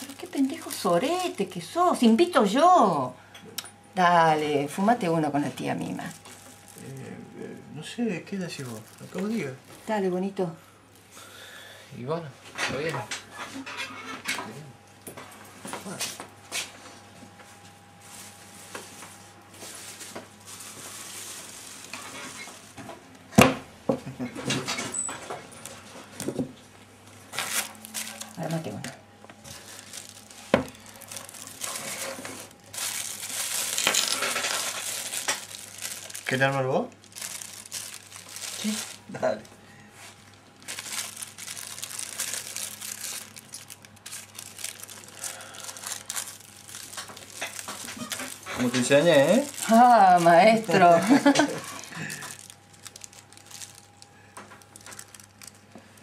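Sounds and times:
plastic bag crinkling: 0.0s - 2.5s, 4.3s - 10.2s, 18.0s - 23.0s, 27.0s - 56.0s.

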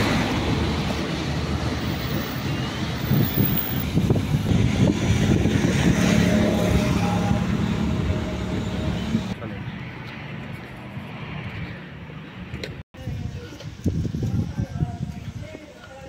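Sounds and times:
vehicles passing: 0.0s - 12.8s.

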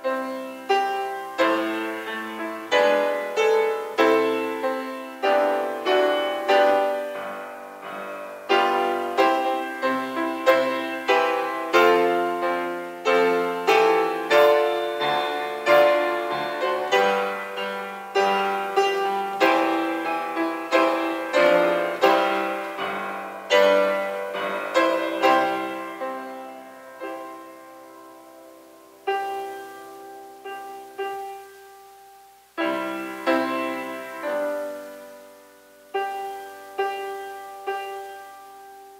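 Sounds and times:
grand piano playing: 0.0s - 38.9s.

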